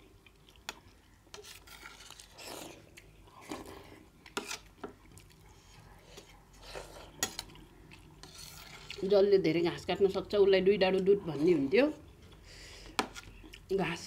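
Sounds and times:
metal spoon scraping a steel plate: 0:08.2 - 0:09.0.

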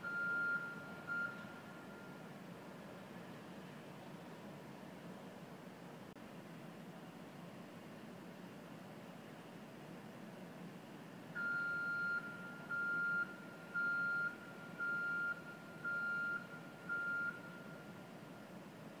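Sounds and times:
high warning beeps: 0:00.0 - 0:02.3, 0:11.4 - 0:18.0
low steady hum: 0:00.0 - 0:19.0.

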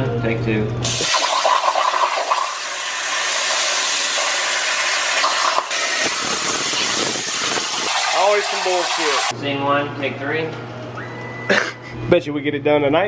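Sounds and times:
plasma torch hissing: 0:00.8 - 0:09.3.

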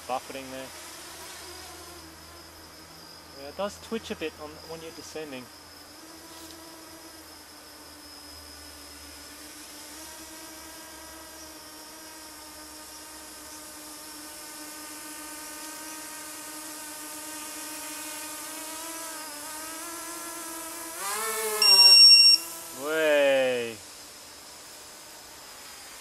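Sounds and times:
drone motors buzzing: 0:00.0 - 0:26.0
high electronic beep: 0:21.6 - 0:22.5.

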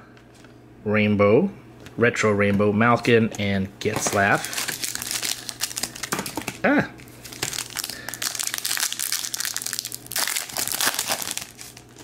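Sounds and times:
foil wrapper crinkling: 0:04.1 - 0:12.0.

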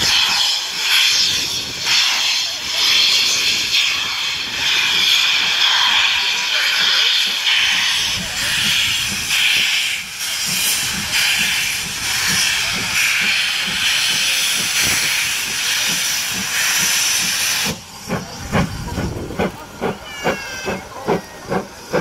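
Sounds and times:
steam hissing: 0:00.0 - 0:22.0
locomotive exhaust beats: 0:04.6 - 0:22.0.

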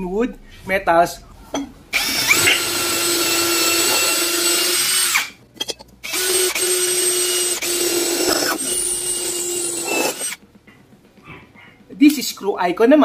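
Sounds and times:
cordless drill boring into wood: 0:02.0 - 0:05.4, 0:06.0 - 0:10.4
drill boring into steel tube: 0:02.0 - 0:05.4, 0:06.0 - 0:10.4.

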